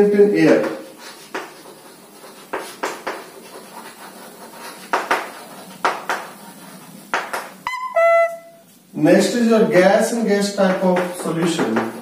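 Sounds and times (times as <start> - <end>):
chalk scratching on blackboard: 0.6 - 7.6.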